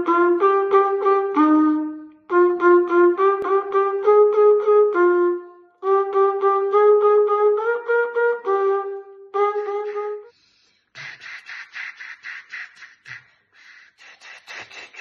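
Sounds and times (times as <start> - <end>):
flugelhorn playing held notes: 0.0 - 10.3
breathy puffs of air: 9.8 - 15.0.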